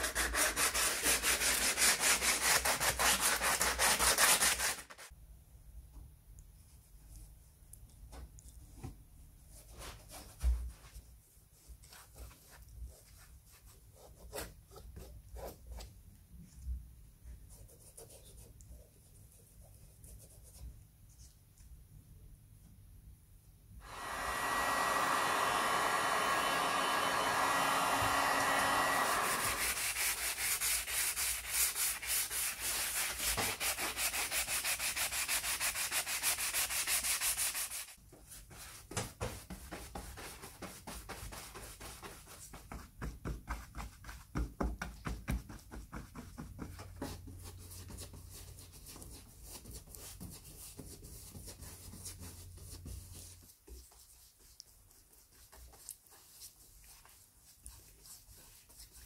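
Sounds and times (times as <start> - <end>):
sanding sponge rasping: 0.0 - 5.1, 28.5 - 38.0
paintbrush strokes: 9.4 - 16.6, 17.2 - 21.7, 23.8 - 42.9, 46.2 - 59.0.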